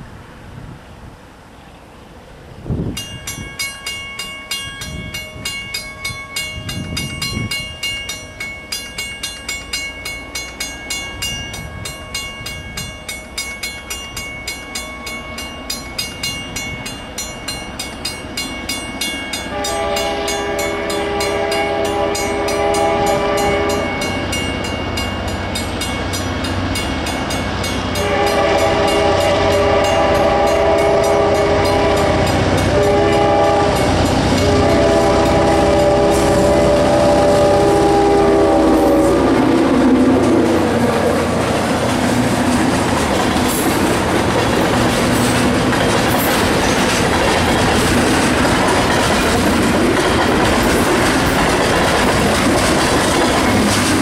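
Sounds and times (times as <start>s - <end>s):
crossing bell ringing: 2.9s - 54.0s
locomotive horn blasts: 19.4s - 24.3s, 27.9s - 40.6s
locomotive engine rumble: 19.5s - 54.0s.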